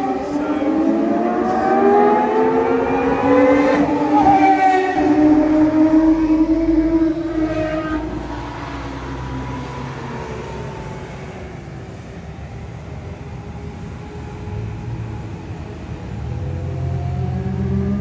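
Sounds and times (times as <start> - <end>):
sports car engine passing: 0.0 - 11.8, 16.4 - 18.0.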